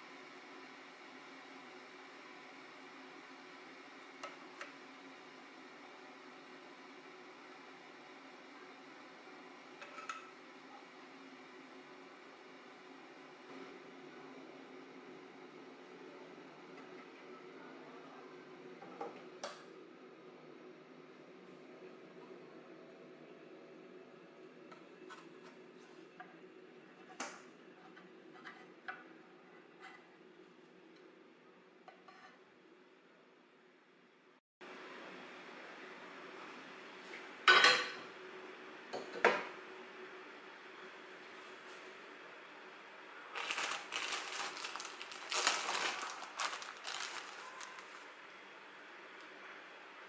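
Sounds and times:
plastic bag crinkling: 0:43.3 - 0:48.1.

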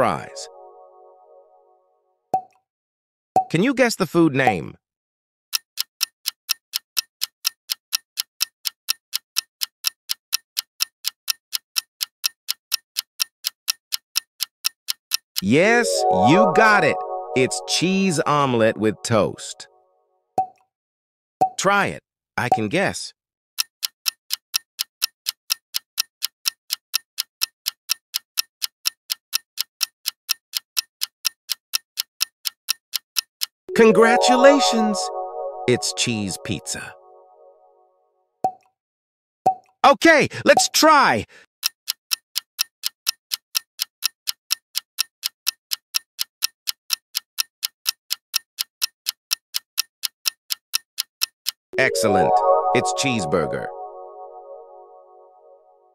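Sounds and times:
clock ticking: 0:05.5 - 0:19.0, 0:23.6 - 0:37.2, 0:41.6 - 0:54.4.

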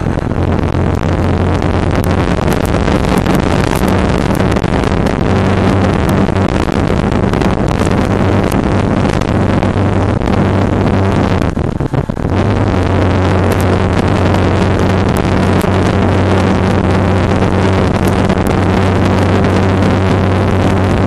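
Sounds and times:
motorcycle engine droning: 0:00.0 - 0:21.0
wind rushing on microphone: 0:00.0 - 0:21.0.

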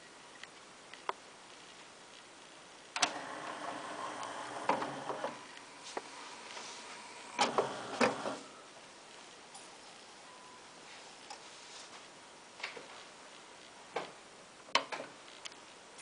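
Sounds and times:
mechanical clicks and clunks: 0:03.0 - 0:05.6, 0:07.2 - 0:08.5
motor whir: 0:03.0 - 0:05.6, 0:06.3 - 0:08.5.

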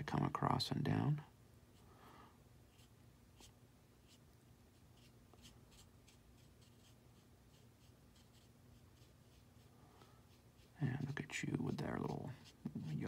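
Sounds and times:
brush strokes on paper: 0:02.6 - 0:13.0.

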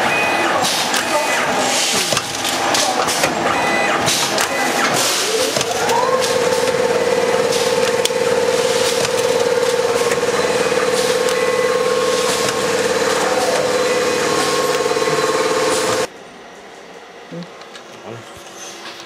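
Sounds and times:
packing machine din: 0:00.0 - 0:16.1
machine whine: 0:00.0 - 0:19.0
irregular machine clicks: 0:07.5 - 0:11.5.

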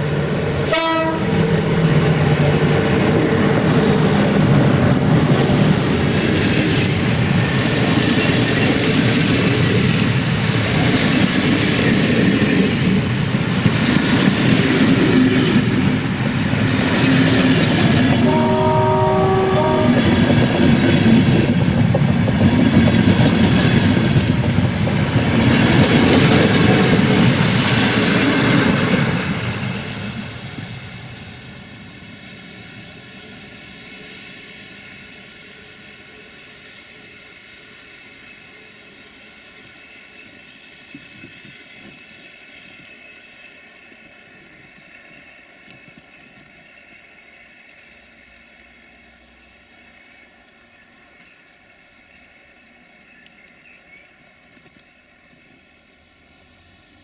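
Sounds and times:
train wheel and rail noise: 0:00.0 - 0:57.0
train horn: 0:00.6 - 0:01.4, 0:18.1 - 0:20.4.

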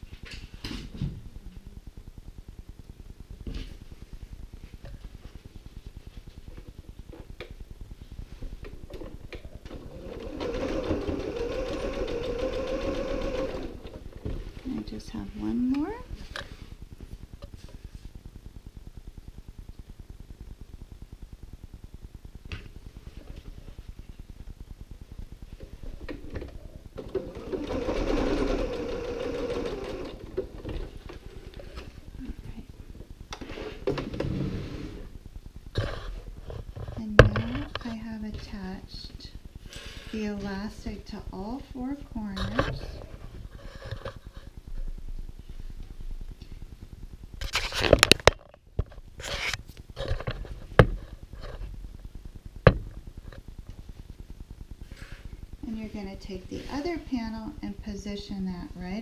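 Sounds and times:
sewing machine stitching: 0:09.7 - 0:14.0, 0:27.0 - 0:30.5.

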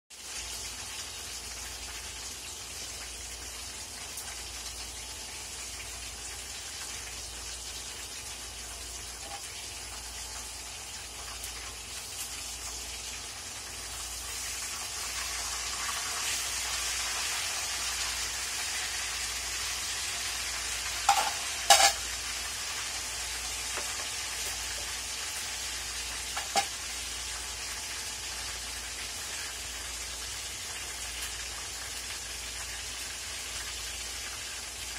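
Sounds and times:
food sizzling in a wok: 0:00.1 - 0:34.9
metal spatula clanking on wok: 0:21.1 - 0:22.0.

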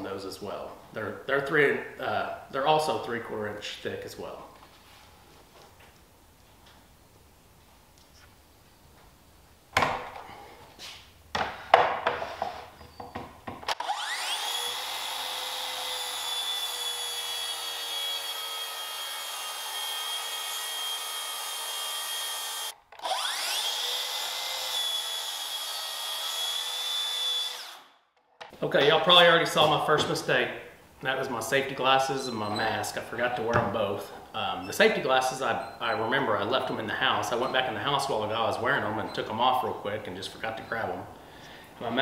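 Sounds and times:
circular saw cutting plywood: 0:13.7 - 0:27.9.

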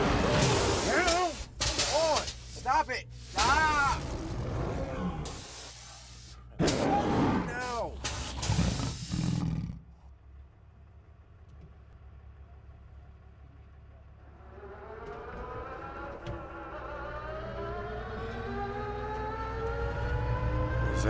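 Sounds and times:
loud noise: 0:00.0 - 0:05.8
pickup truck engine rumbling: 0:09.8 - 0:19.4.

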